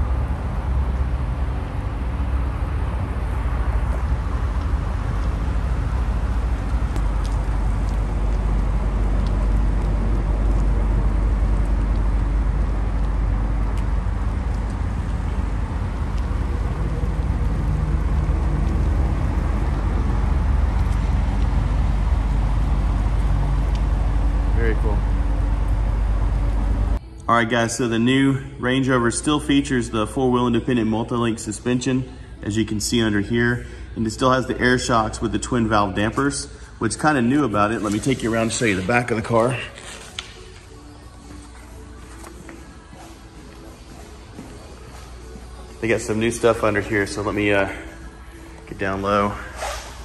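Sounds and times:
car engine rumbling steadily: 0.0s - 27.1s.

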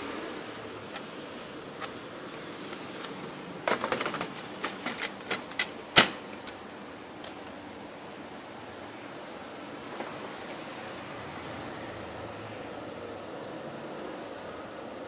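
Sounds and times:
sharp plastic snap: 4.0s - 7.5s.

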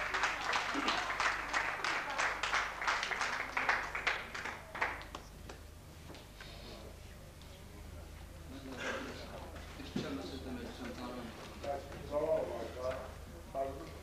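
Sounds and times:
audience applauding: 0.0s - 5.3s.

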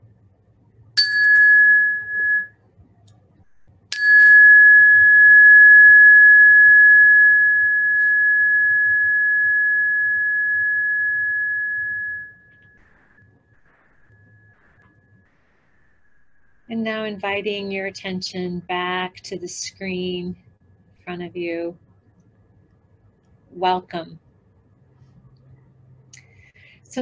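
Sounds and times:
meditation bell ringing: 1.0s - 2.5s, 3.9s - 13.0s.

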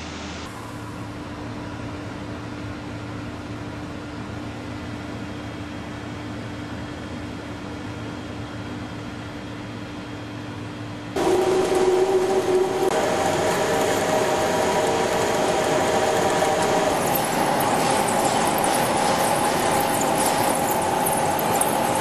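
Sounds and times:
steady machine hum: 0.0s - 22.0s
lathe turning steel: 11.2s - 22.0s
steel chips crackling: 15.6s - 22.0s.

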